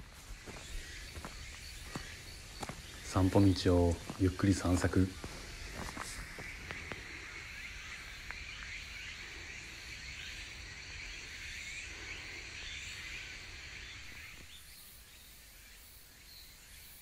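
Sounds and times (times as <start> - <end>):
chorus of insects and birds: 0.0 - 17.0.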